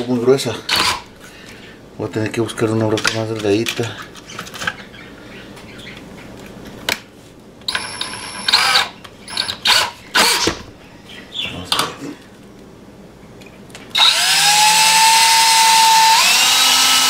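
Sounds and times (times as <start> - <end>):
electric drill motor whining: 7.7 - 10.4, 13.9 - 17.0.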